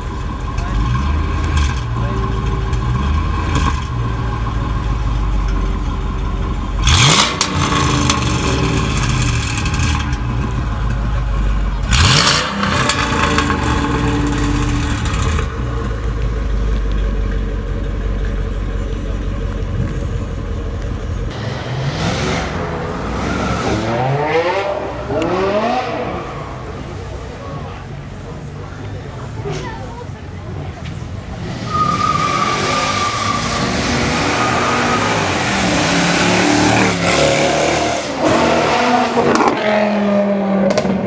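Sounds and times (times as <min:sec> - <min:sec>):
car engine idling and revving: 0:00.0 - 0:41.0
engine note rising and falling: 0:21.2 - 0:26.8.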